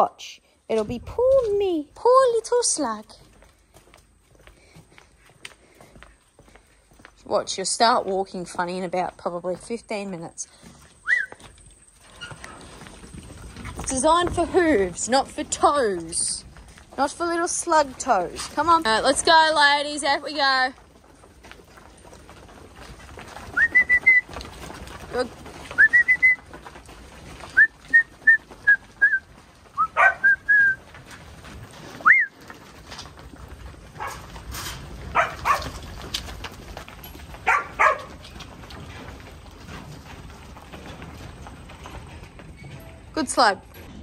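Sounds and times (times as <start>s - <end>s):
sheep shuffling: 0.4s - 44.0s
short whistled notes: 11.0s - 11.4s.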